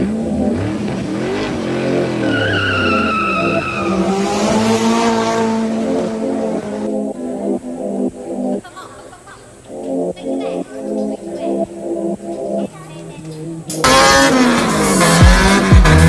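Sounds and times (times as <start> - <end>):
car engine revving: 0.0 - 8.6, 13.4 - 16.0
tyres squealing: 2.1 - 4.6.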